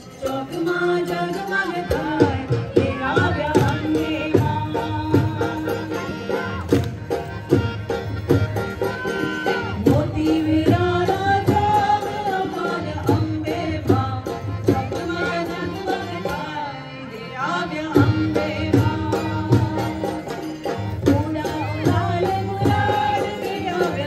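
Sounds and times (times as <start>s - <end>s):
harmonium: 0.0s - 24.0s.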